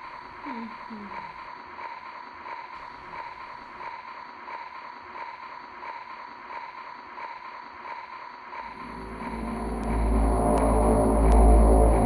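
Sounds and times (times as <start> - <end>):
pulsing hissing drone: 0.0 - 12.0.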